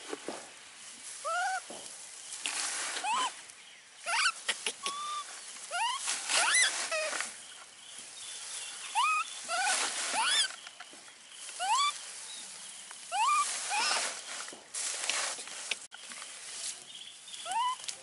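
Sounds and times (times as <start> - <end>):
baby monkeys squeaky cries: 1.2 - 1.7, 3.0 - 3.4, 4.0 - 7.3, 8.9 - 10.6, 11.6 - 12.0, 13.1 - 14.1, 17.4 - 17.9.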